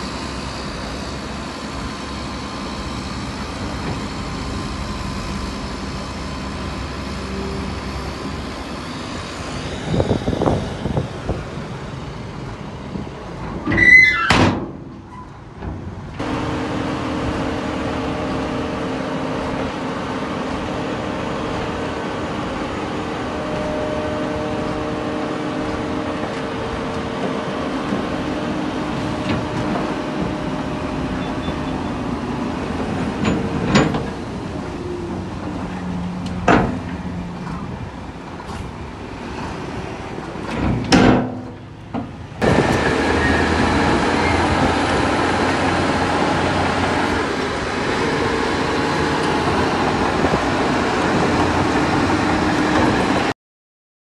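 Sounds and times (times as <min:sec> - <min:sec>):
diesel engine running: 0:00.0 - 0:13.7, 0:14.8 - 0:53.3
metallic squeal: 0:13.7 - 0:14.4, 0:43.1 - 0:43.6.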